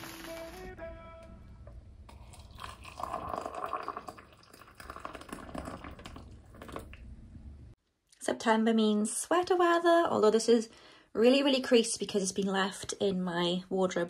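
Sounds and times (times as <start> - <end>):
water pouring into a mug: 2.1 - 7.0.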